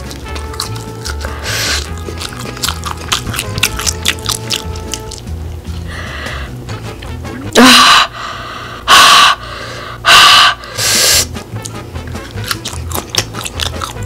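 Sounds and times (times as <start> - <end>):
quiet background music: 0.0 - 7.8, 10.8 - 14.0
person gasping and panting: 1.3 - 1.9, 7.6 - 11.3.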